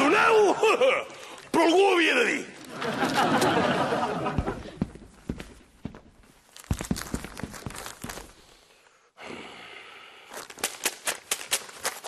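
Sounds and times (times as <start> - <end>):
footsteps: 3.4 - 8.6.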